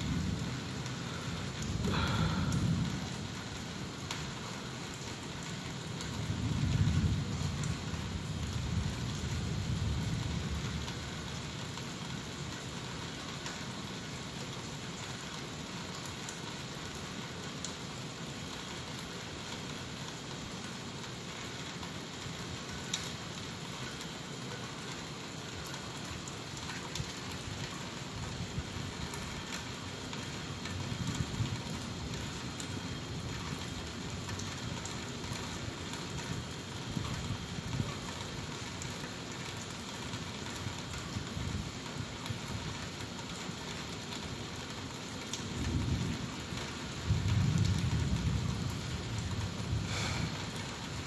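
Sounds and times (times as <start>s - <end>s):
distant thunder rumble: 0.0s - 3.5s, 47.0s - 51.0s
raindrop ticks: 0.0s - 51.0s
steady rain falling: 0.0s - 51.0s.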